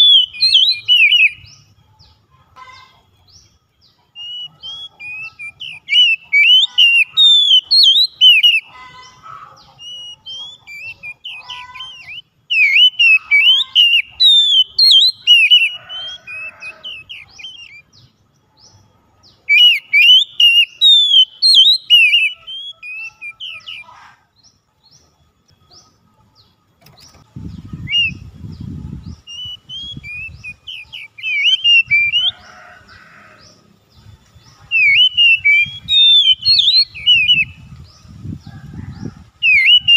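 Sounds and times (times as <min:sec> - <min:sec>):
bird singing whistled phrases: 0:00.0 - 0:01.5, 0:04.2 - 0:08.7, 0:09.8 - 0:17.9, 0:19.5 - 0:23.9, 0:29.1 - 0:32.4, 0:34.6 - 0:37.6, 0:39.4 - 0:39.9.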